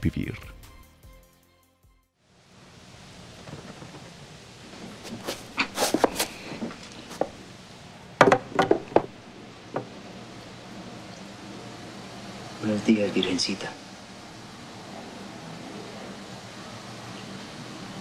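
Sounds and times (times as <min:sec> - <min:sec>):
steady background hiss: 0:02.2 - 0:18.0
knocks and clattering thuds: 0:08.2 - 0:10.0.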